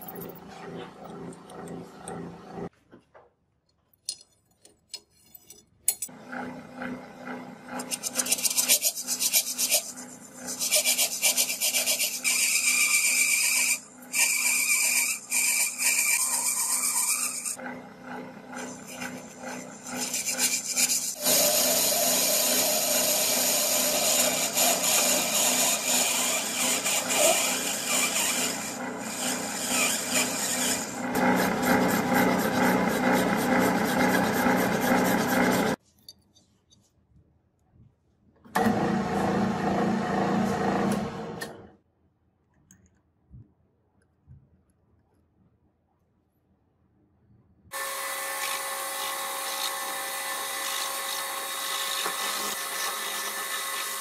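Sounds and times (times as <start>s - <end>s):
tool scraping spinning metal: 5.1s - 36.4s
metal lathe humming: 6.2s - 35.8s.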